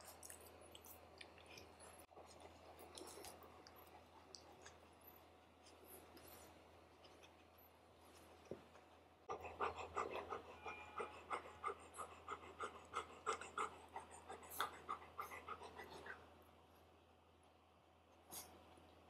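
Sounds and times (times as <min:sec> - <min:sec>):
dog panting: 0:09.3 - 0:16.2.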